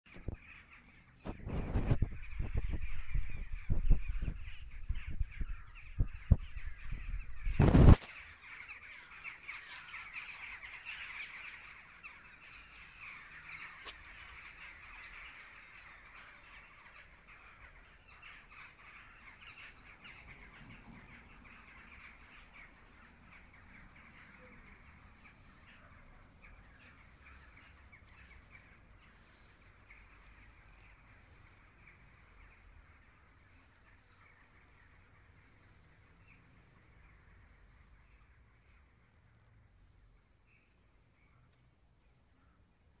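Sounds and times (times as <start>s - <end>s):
flock of birds calling: 0.1s - 43.0s
wind buffeting microphone: 1.2s - 8.0s.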